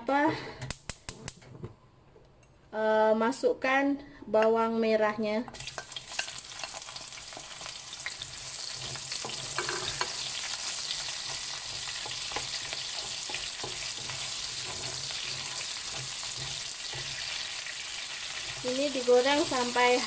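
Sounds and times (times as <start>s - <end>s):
onion sizzling in hot oil: 5.6s - 20.0s
spatula scraping a pan: 7.6s - 18.8s.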